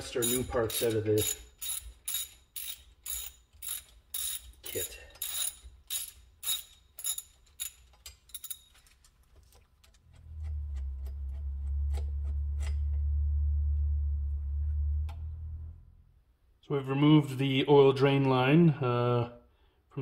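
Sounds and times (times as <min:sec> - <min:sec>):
ratchet wrench clicking: 0:00.0 - 0:08.7
steady low hum: 0:10.0 - 0:16.6.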